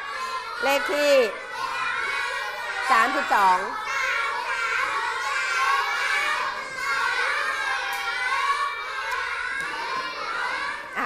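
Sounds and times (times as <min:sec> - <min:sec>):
children chattering: 0:00.0 - 0:11.0.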